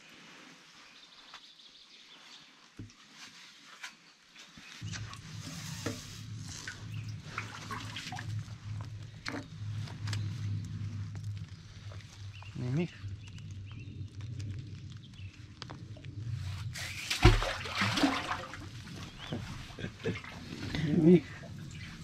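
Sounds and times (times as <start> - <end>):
low steady hum: 4.8 - 22.0
water dripping and splashing: 4.8 - 22.0.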